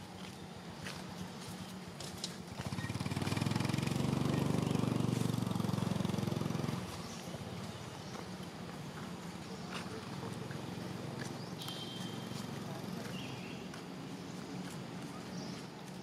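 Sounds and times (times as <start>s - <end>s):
passing vehicle engine: 2.5s - 13.1s.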